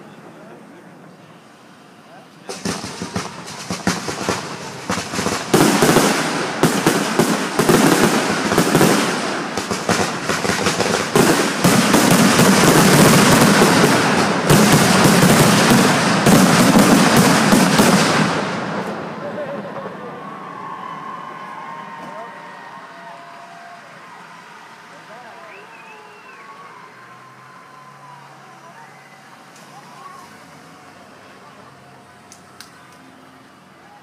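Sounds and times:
fireworks exploding: 2.5s - 20.1s.

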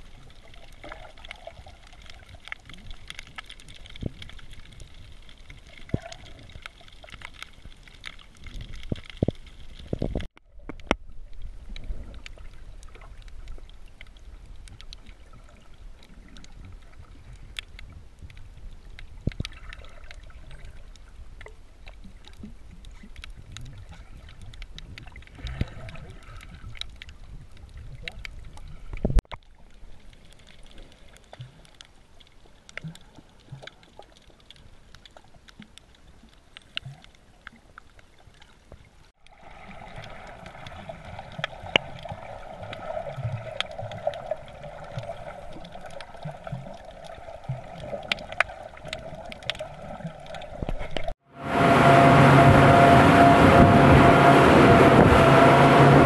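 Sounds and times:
underwater crackle of clicks: 0.0s - 51.2s
low water rumble: 0.0s - 56.0s
steady hum: 51.3s - 56.0s.

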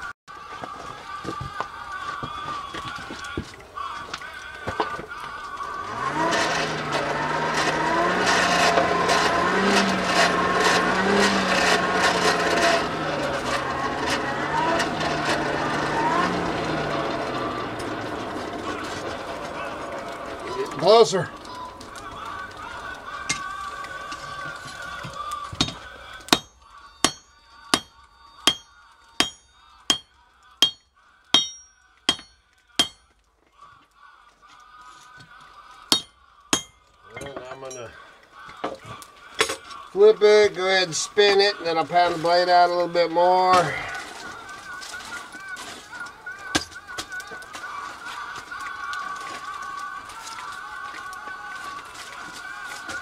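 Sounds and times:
coals scraping and crackling: 0.3s - 53.0s
forge blower motor hum: 5.8s - 23.4s
hammer ringing on anvil: 25.6s - 33.0s, 35.9s - 37.4s.

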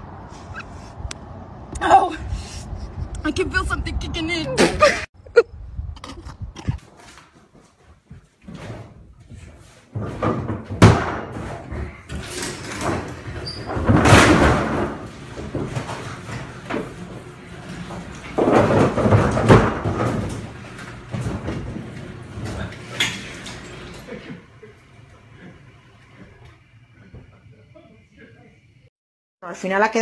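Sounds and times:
garage door rattling on metal tracks: 10.0s - 24.2s.

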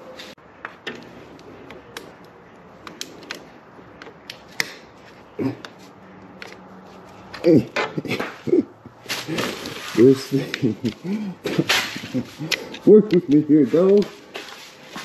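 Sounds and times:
clicks and taps of tools: 12.2s - 14.5s.

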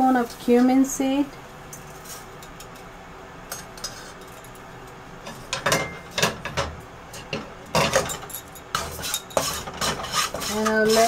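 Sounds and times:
metal spoon scraping in tin: 7.8s - 11.0s.

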